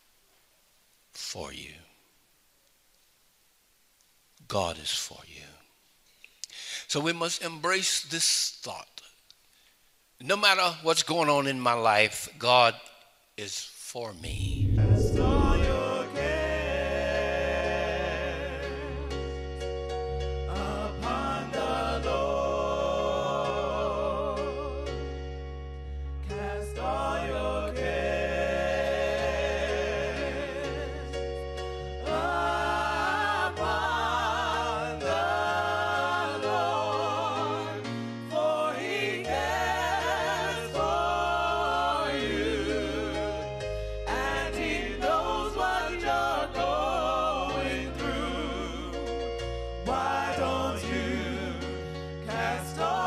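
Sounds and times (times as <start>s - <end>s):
gospel singing with vibrato: 14.2s - 19.6s, 20.2s - 25.2s, 26.2s - 53.0s.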